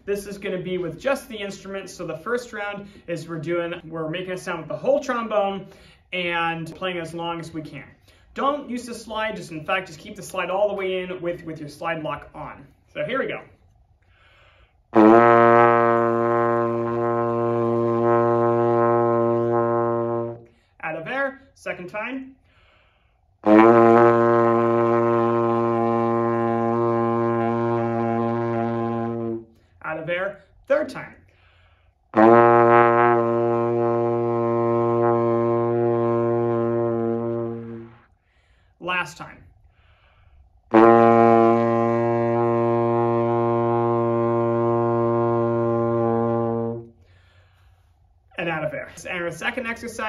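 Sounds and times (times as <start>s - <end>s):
trombone long low note: 14.9s - 20.5s, 23.4s - 29.5s, 32.1s - 38.0s, 40.7s - 46.9s.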